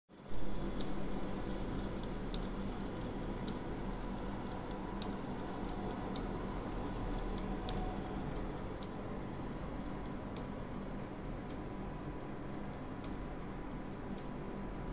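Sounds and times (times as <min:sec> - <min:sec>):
inkjet printer humming: 0:02.5 - 0:12.7.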